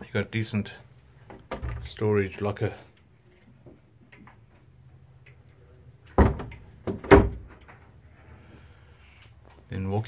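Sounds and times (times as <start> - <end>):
wooden door knocking shut: 6.2 - 7.5.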